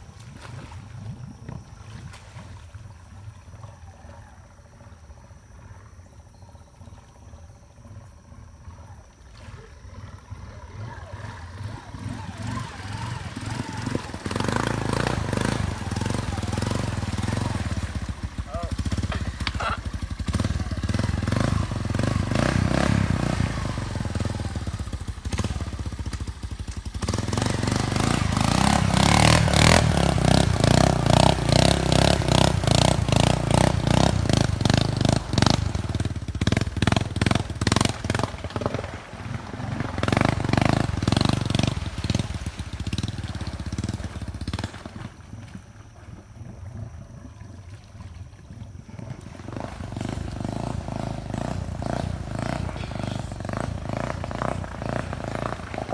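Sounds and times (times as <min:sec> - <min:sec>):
vehicle pushing through water: 0:00.0 - 0:55.9
engine revving hard: 0:11.0 - 0:25.8, 0:27.0 - 0:44.8, 0:49.4 - 0:55.9.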